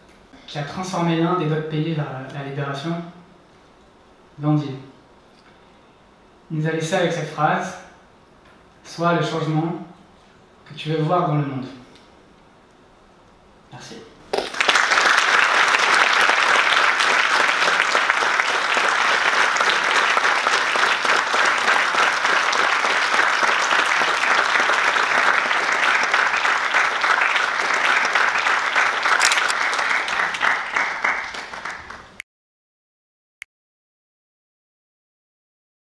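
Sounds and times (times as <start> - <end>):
audience applauding: 14.3 - 32.2.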